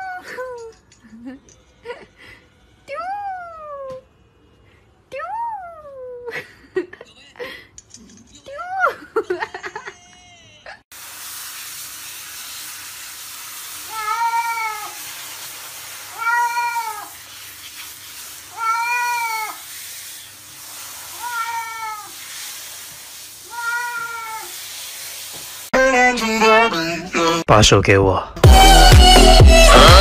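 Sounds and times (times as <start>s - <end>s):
cat meowing: 13.9s - 15.0s, 16.1s - 17.1s, 18.5s - 19.6s, 21.1s - 22.2s, 23.5s - 24.5s.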